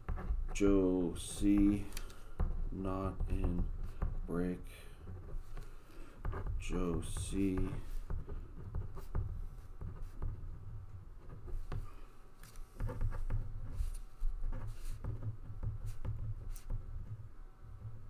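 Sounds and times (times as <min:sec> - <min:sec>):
low room hum: 0:00.0 - 0:18.0.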